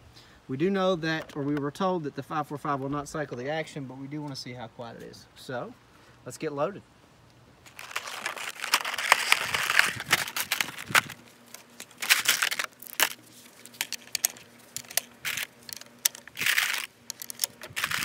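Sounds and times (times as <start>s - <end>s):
plastic crinkling and rustling: 7.6s - 18.0s
cartridges clicking and rattling: 11.8s - 18.0s.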